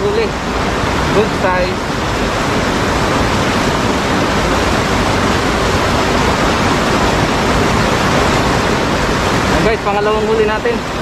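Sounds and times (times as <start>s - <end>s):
river water rushing over rocks: 0.0s - 11.0s.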